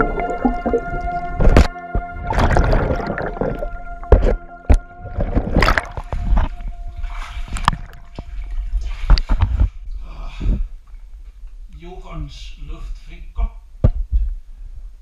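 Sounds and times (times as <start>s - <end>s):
underwater knocks: 0.0s - 6.6s, 7.5s - 8.4s
underwater bubbles: 0.0s - 9.7s
water sloshing: 0.0s - 9.9s
steady humming tone: 0.0s - 11.6s.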